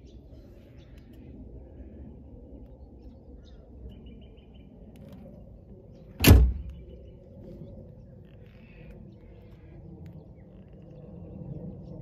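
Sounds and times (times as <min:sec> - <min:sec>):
low outdoor rumble: 0:00.0 - 0:12.0
loud sharp thump: 0:06.2 - 0:06.8.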